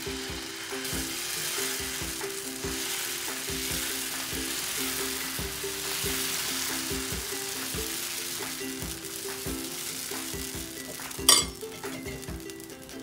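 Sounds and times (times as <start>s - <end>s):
batter sizzling on hot pan: 0.0s - 13.0s
low background music: 0.0s - 13.0s.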